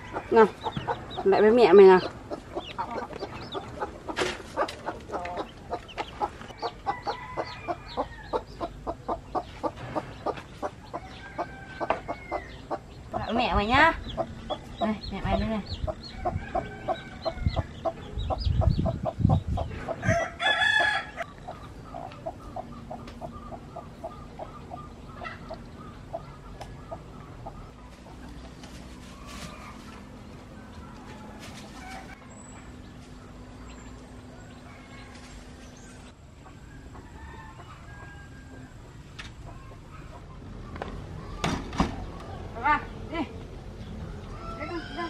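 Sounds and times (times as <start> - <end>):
chickens clucking: 0.0 - 42.7
rooster crowing: 6.8 - 8.4, 11.0 - 12.6, 16.1 - 17.7, 20.0 - 21.3, 36.6 - 38.9, 44.3 - 45.0.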